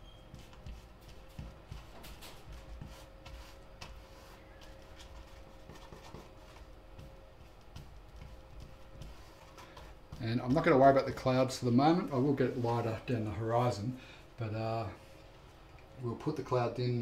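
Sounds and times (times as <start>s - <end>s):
faint steady hum: 0.0s - 17.0s
paintbrush scrubbing on canvas: 2.5s - 6.8s, 7.4s - 10.5s.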